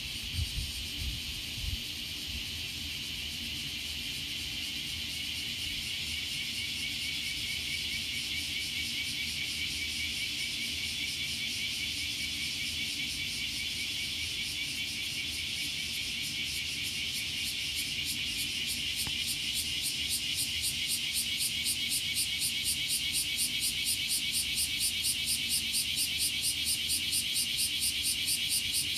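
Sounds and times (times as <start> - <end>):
cicadas buzzing: 0.0 - 28.9.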